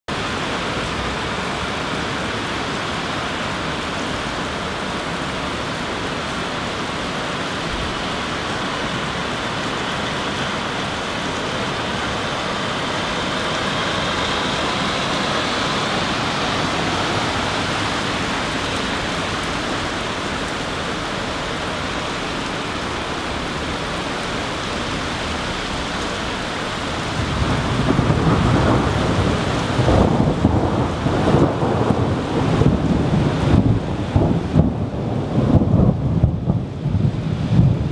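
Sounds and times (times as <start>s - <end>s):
heavy rain on leaves: 0.1s - 37.9s
low thunder rumble: 13.3s - 37.9s.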